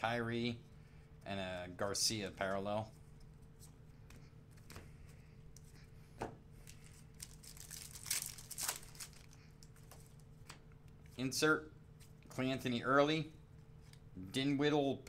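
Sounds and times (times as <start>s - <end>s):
wrapper tearing and crinkling: 6.8s - 9.4s.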